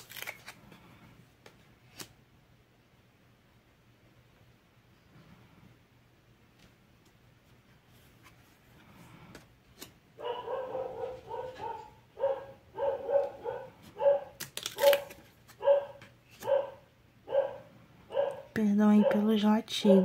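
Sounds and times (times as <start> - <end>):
dog barking: 10.2 - 20.0.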